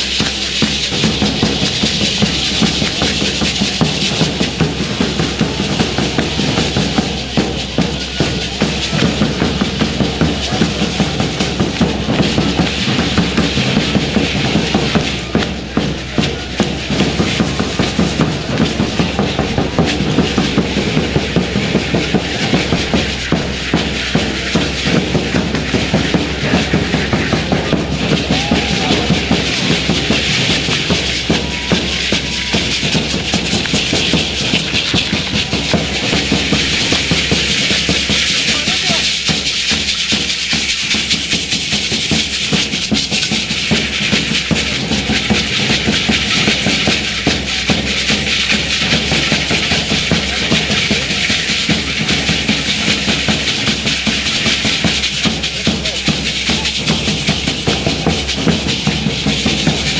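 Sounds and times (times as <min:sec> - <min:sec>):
bass drum beating: 0:00.0 - 0:40.4
hand rattles shaking: 0:00.0 - 0:59.9.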